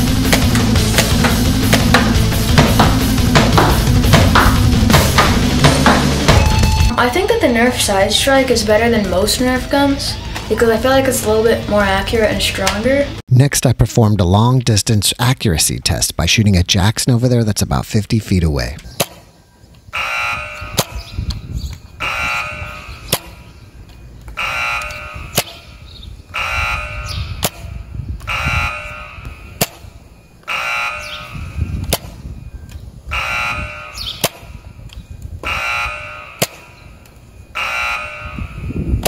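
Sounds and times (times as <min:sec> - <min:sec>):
wind rumble on microphone: 0:20.3 - 0:23.5, 0:24.9 - 0:30.0, 0:31.1 - 0:36.0, 0:38.1 - 0:39.0.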